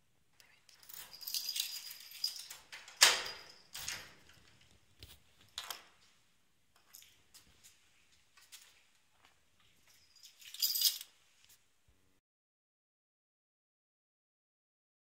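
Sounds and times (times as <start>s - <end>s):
key ring jingling: 0.7s - 4.4s, 9.9s - 11.2s
lock clacking open: 1.8s - 4.5s.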